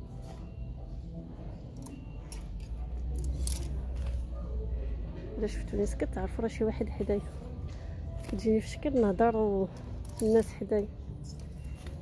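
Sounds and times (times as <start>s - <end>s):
hangers clicking and scraping: 1.8s - 4.2s, 10.0s - 10.6s.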